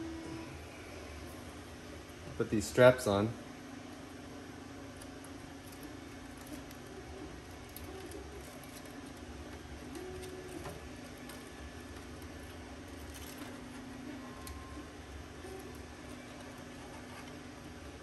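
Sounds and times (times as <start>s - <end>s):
steady low hum: 0.0s - 18.0s
wires rustling in metal box: 7.5s - 14.6s.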